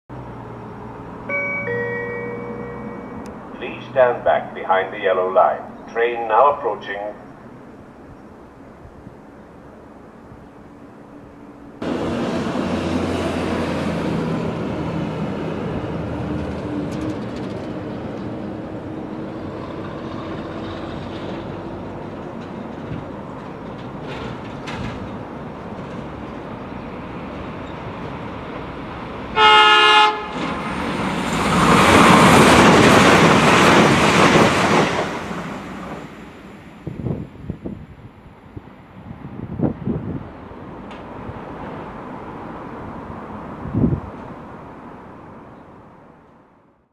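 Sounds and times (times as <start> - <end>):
train engine drone: 0.1 - 46.1
train passing close by: 0.1 - 46.3
train horn blast: 29.3 - 30.4.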